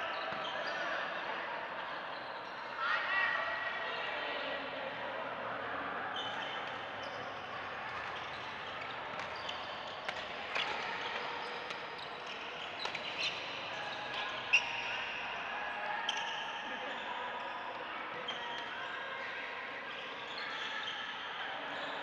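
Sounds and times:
echoing hubbub of sports hall: 0.0s - 22.0s
shoes squeaking on court floor: 6.2s - 15.2s.

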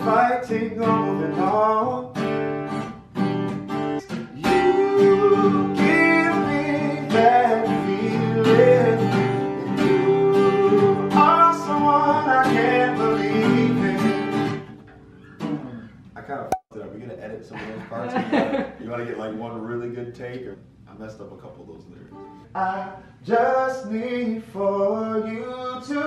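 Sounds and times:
man singing: 0.0s - 2.2s, 4.3s - 14.5s, 22.5s - 26.0s
acoustic guitar strumming: 0.0s - 16.0s.

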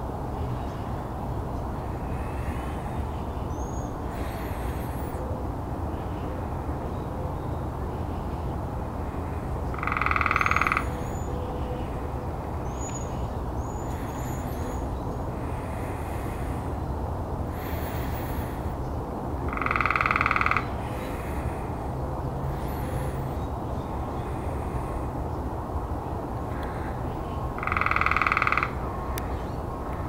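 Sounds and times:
woodpecker drumming: 9.7s - 11.0s, 19.5s - 21.2s, 27.6s - 28.8s.

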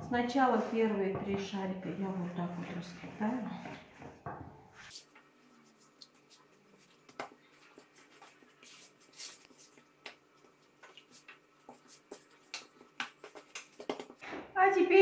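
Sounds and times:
hands rubbing and tapping dough: 4.8s - 14.2s.

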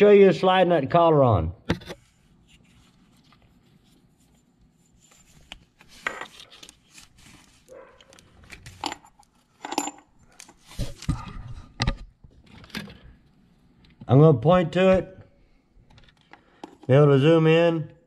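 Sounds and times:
metal tool clinking and scraping: 8.4s - 10.7s.

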